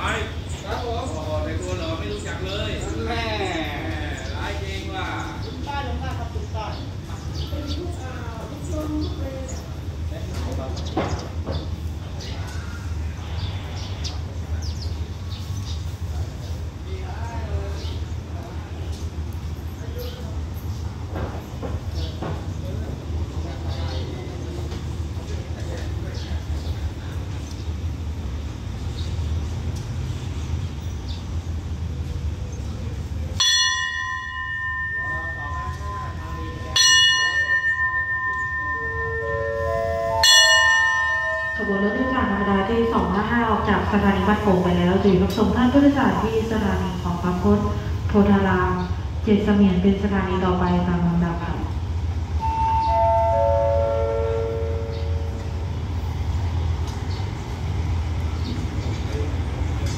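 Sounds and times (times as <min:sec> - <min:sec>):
train rumbling: 0:00.0 - 0:59.9
bell ringing: 0:33.4 - 0:43.3, 0:52.4 - 0:55.4
descending pa chime: 0:33.4 - 0:43.3, 0:52.4 - 0:55.4.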